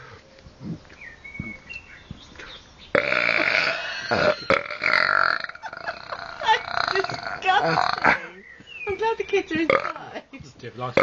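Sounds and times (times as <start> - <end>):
man belching loudly: 3.0 - 8.4, 9.7 - 10.1.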